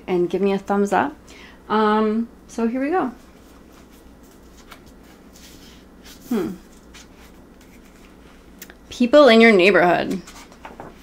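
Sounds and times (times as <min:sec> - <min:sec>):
board book pages turning: 0:03.3 - 0:08.5, 0:10.0 - 0:11.0.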